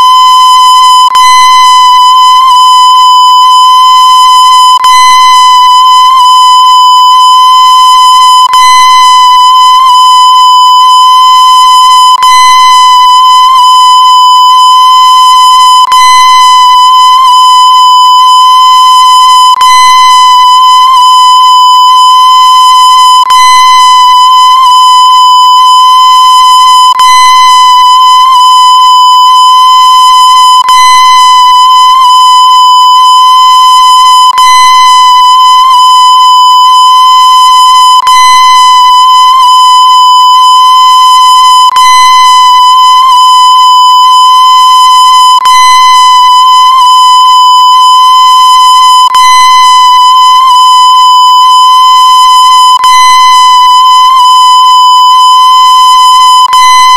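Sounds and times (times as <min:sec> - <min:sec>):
high-pitched electronic tone: 0:00.0 - 0:56.9.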